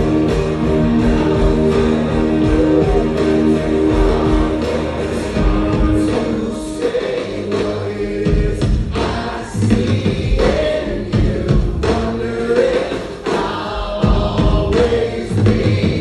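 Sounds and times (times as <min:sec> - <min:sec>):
group of voices singing: 0:00.0 - 0:16.0
live band music: 0:00.0 - 0:16.0.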